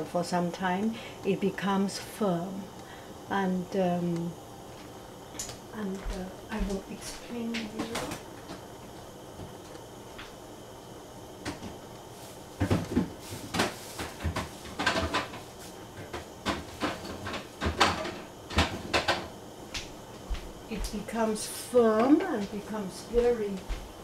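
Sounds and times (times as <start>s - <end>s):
kitchen knocks and clacks: 12.6s - 15.4s, 16.0s - 19.3s.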